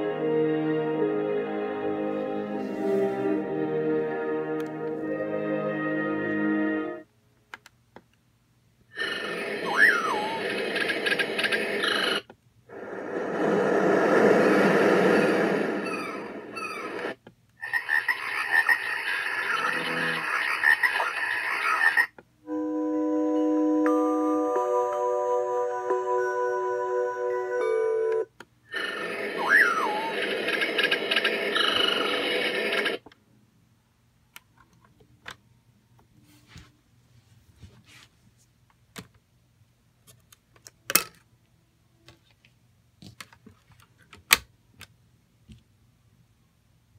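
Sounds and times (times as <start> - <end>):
falling chirps: 14.4 - 22.1.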